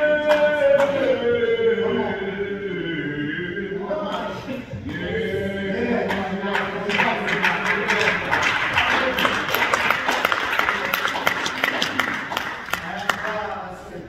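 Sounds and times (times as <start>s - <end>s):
people clapping along: 0.0s - 1.2s, 5.8s - 13.7s
congregation singing: 0.0s - 13.8s.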